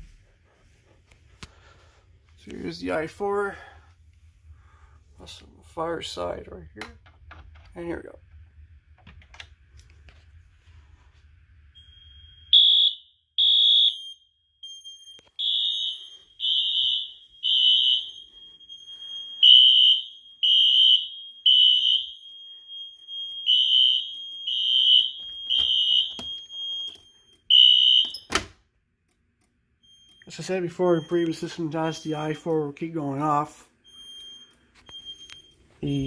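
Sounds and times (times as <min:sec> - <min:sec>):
fire alarm beeps: 0:11.7 - 0:28.3, 0:29.8 - 0:36.0.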